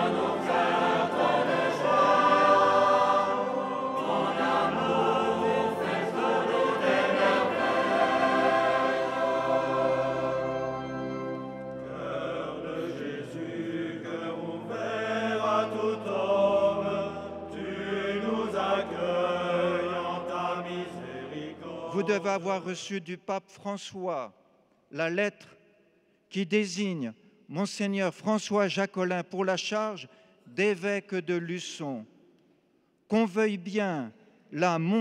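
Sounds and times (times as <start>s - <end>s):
choir singing a chant: 0.0s - 23.1s.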